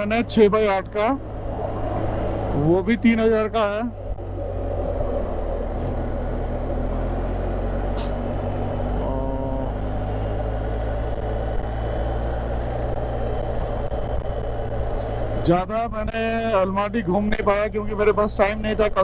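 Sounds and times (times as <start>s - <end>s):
motorcycle engine and wind rumble: 0.0s - 19.0s
short hiss: 8.0s - 8.2s.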